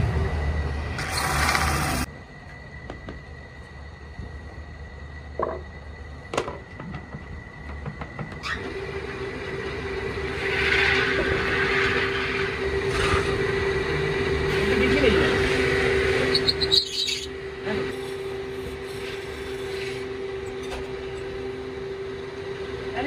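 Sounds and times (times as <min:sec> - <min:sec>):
steady whine: 0:00.0 - 0:23.0
hiss: 0:17.9 - 0:20.1.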